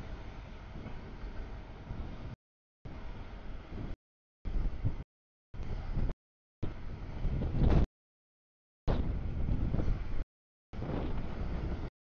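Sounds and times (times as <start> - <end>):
freight train rumbling on rails: 0.0 - 5.0, 8.9 - 10.2, 10.8 - 11.9.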